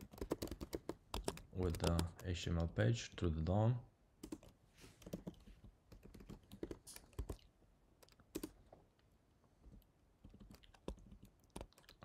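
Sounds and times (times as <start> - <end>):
typing on computer keyboard: 0.0 - 2.7, 4.2 - 8.6, 10.2 - 12.0.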